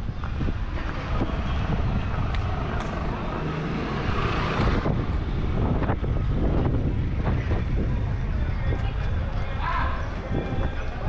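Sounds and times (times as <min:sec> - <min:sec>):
vehicle passing: 0:00.0 - 0:08.2
road traffic rumble: 0:00.0 - 0:11.0.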